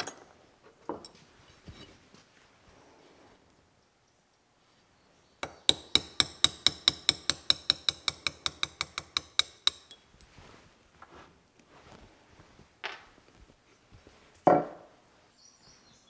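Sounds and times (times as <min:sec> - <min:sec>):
hammer tapping steel pin: 0:05.4 - 0:10.0.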